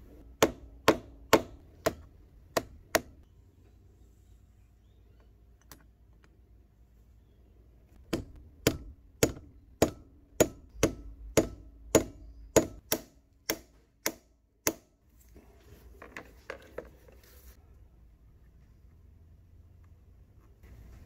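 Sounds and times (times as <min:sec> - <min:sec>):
hammer tapping metal punch: 0:00.2 - 0:03.2, 0:08.0 - 0:14.9.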